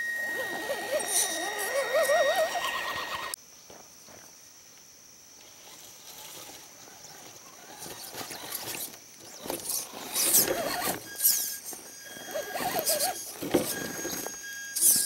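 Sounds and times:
faint motor whine: 0.0 - 3.4, 5.3 - 15.0
tyres crunching on dirt: 5.6 - 15.0.

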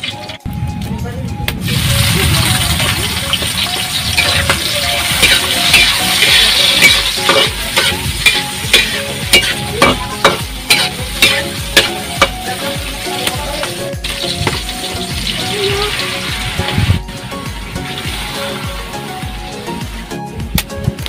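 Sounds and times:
clam meat sizzling in frying pan: 1.7 - 20.0
metal spatula scraping pan: 3.7 - 13.3.

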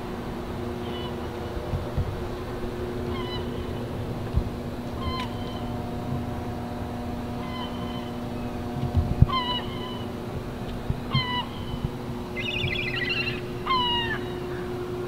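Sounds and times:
low steady hum: 0.0 - 15.0
high-pitched animal calls: 9.3 - 10.1, 12.4 - 14.7.

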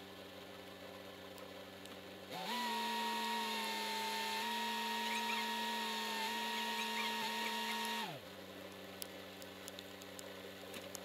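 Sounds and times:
low engine hum: 0.0 - 11.0
machine whine winding up: 2.3 - 8.2.

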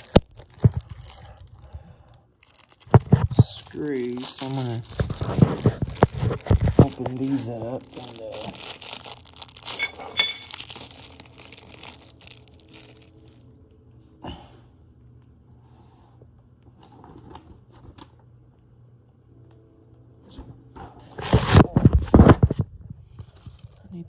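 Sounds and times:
plastic bags crinkling: 0.0 - 1.7, 2.3 - 13.6, 23.2 - 23.9.

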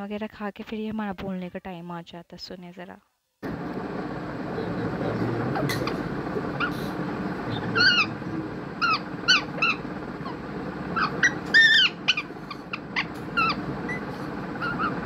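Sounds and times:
parakeet squawking: 5.7 - 15.0.

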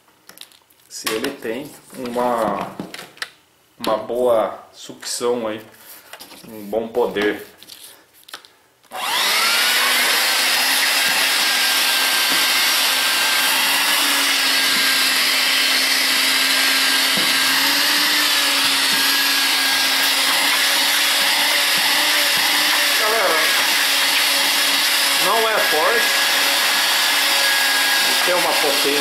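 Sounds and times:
handheld vacuum cleaner running: 8.9 - 29.0.

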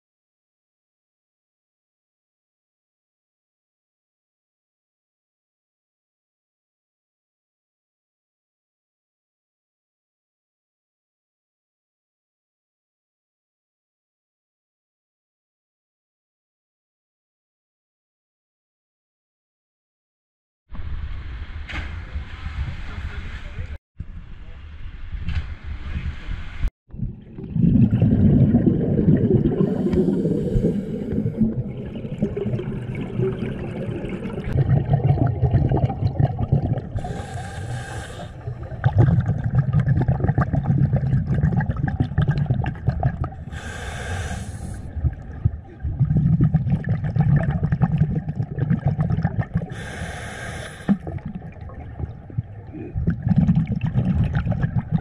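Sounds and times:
bubbly underwater exhales: 26.9 - 55.0
hissing in-breaths: 29.6 - 31.5, 37.0 - 38.5, 43.5 - 45.0, 49.7 - 51.1.

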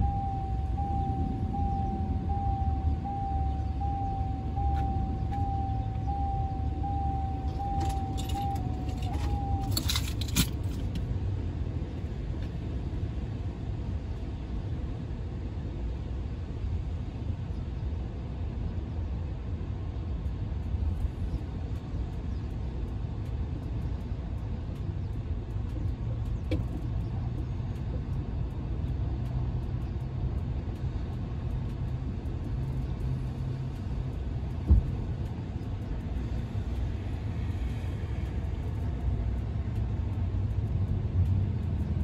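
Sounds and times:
thin high tone: 0.0 - 10.3
keys jingling: 7.8 - 10.9.

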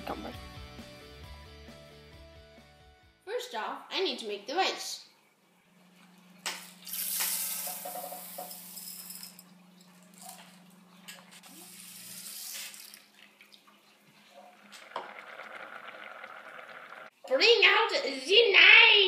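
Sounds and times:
water poured into pot: 11.5 - 17.1.

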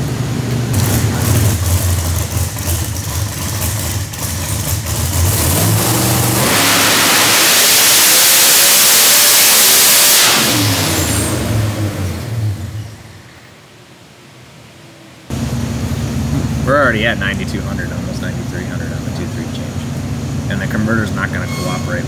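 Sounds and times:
supercharged engine revving on dyno: 0.0 - 13.0.

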